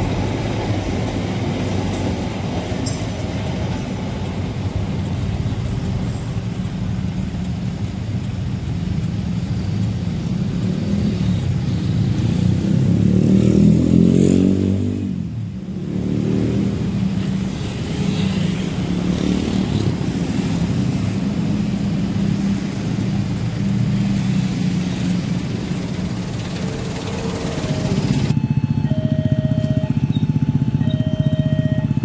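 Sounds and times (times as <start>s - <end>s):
traffic engines: 0.0s - 32.0s
loud engine sliding in pitch: 24.2s - 32.0s.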